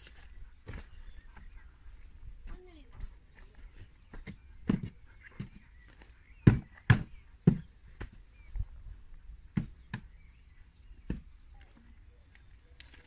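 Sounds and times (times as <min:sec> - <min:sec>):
faint bird chirps: 0:00.0 - 0:13.0
sharp thuds and knocks: 0:04.1 - 0:05.6, 0:06.4 - 0:08.2, 0:09.5 - 0:10.2.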